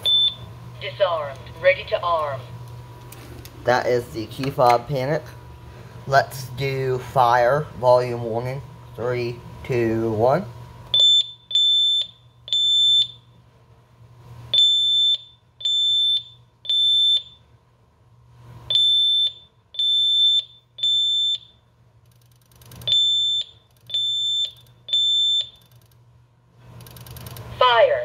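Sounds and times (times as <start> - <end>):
alarm panel beeping: 10.9 - 13.3, 14.5 - 17.4, 18.7 - 21.6, 22.8 - 25.7.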